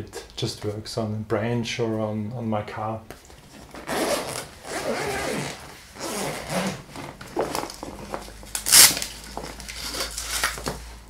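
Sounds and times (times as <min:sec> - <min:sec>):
backpack fabric rustling: 0:03.5 - 0:08.8.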